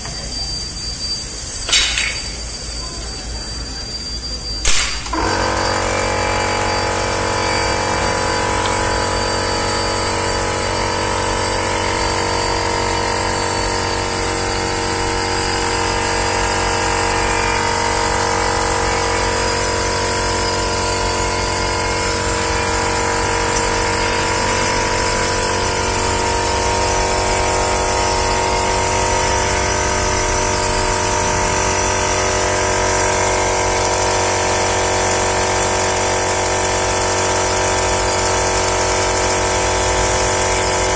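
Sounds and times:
machine high whines: 0.0s - 40.9s
packaging machine humming: 0.0s - 40.9s.

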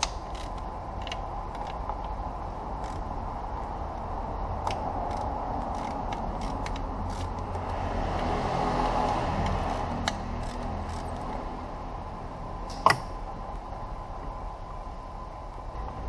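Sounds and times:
ratchet metallic clicks: 0.0s - 2.2s, 2.8s - 3.2s, 4.6s - 8.3s, 9.0s - 11.5s.

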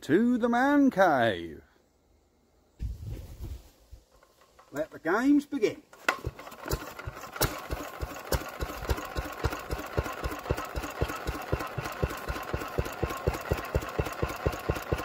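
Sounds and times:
stationary engine running: 6.2s - 15.0s.

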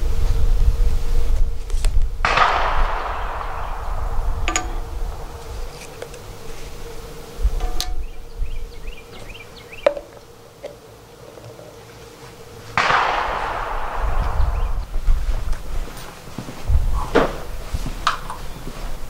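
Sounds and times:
insects buzzing: 0.0s - 19.0s
sudden loud burst: 2.2s - 5.8s, 12.8s - 15.1s.

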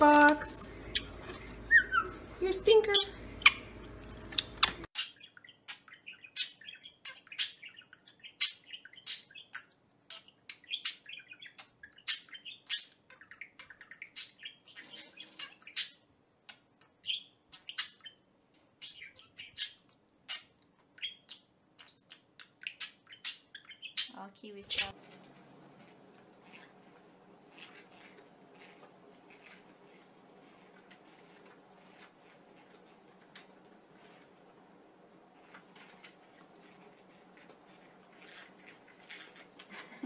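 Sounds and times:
budgerigar chirping: 0.8s - 2.2s, 18.8s - 24.9s.

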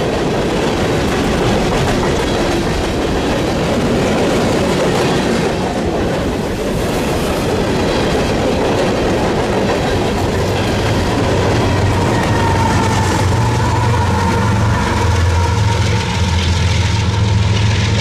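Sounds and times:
train cars rolling on rails: 0.0s - 18.0s
low engine drone: 13.4s - 18.0s.

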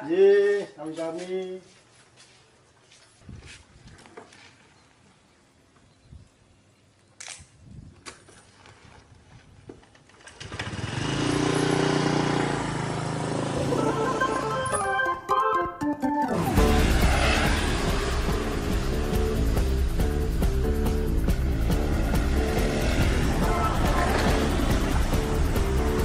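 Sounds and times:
motor scooter engine running: 10.3s - 14.6s, 16.4s - 26.0s.

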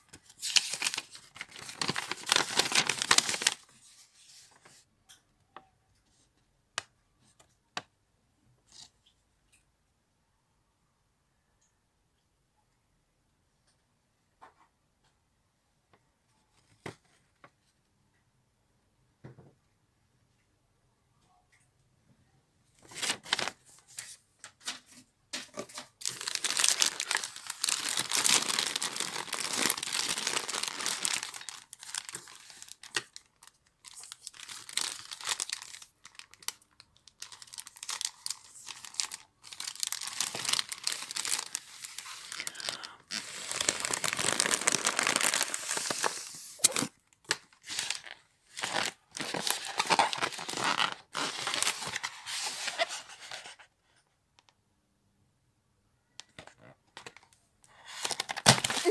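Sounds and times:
foil wrapper crinkling and tearing: 0.0s - 3.7s, 22.9s - 23.7s, 25.4s - 53.4s, 57.8s - 58.9s.

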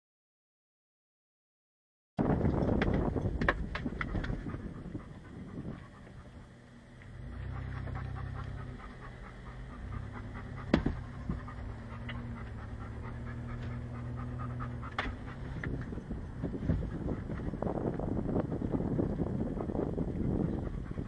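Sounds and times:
car engine humming: 2.2s - 21.0s
sharp knocks: 10.6s - 11.5s.

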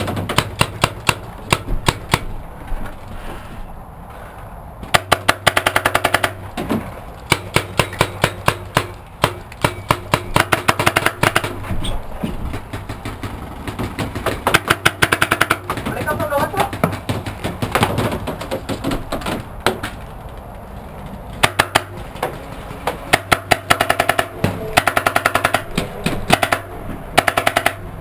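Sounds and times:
paintball markers firing: 0.0s - 2.3s, 4.8s - 6.4s, 7.2s - 11.7s, 12.5s - 20.0s, 21.4s - 27.8s.

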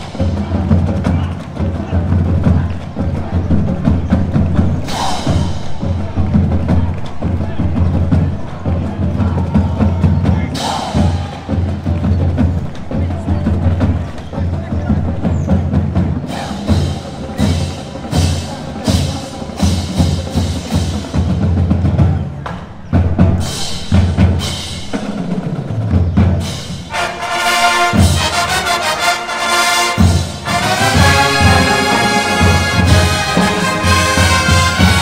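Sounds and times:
drumline with bass drums: 0.0s - 35.0s
brass section chords: 26.4s - 35.0s.

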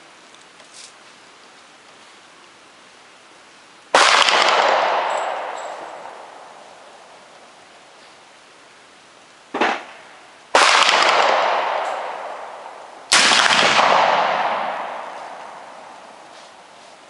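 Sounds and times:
heavy rifle shots echoing: 3.9s - 7.2s, 9.5s - 16.7s
sharp crack: 3.9s - 7.2s, 9.5s - 16.7s.

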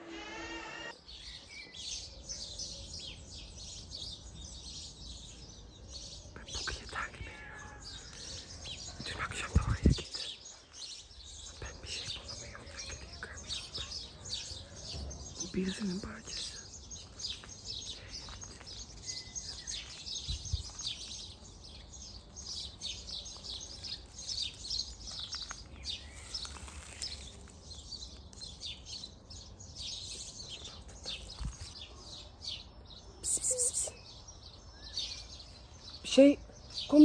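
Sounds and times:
small birds chirping: 0.8s - 37.0s.

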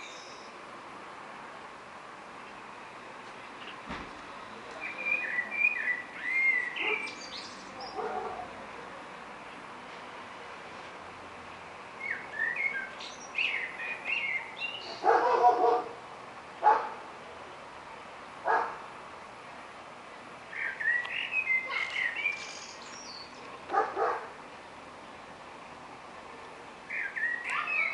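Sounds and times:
birds chirping and singing: 0.0s - 0.6s, 4.8s - 8.5s, 12.0s - 15.6s, 20.5s - 23.6s, 26.8s - 27.9s
dog barking: 6.8s - 7.1s, 7.9s - 8.5s, 15.0s - 16.0s, 16.6s - 17.0s, 18.5s - 18.8s, 23.7s - 24.3s.

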